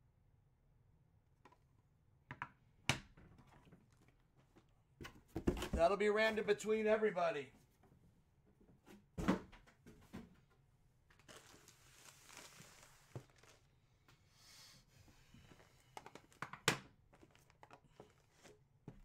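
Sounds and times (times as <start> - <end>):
plastic packaging crinkling: 11.1 - 13.7.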